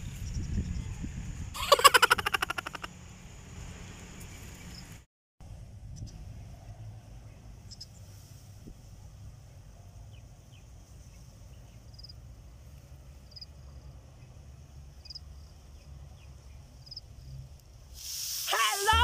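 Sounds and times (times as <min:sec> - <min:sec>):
low wind rumble on microphone: 0:00.0 - 0:01.6, 0:05.5 - 0:10.6
insects chirping: 0:01.6 - 0:05.0, 0:11.9 - 0:12.2, 0:13.1 - 0:19.0.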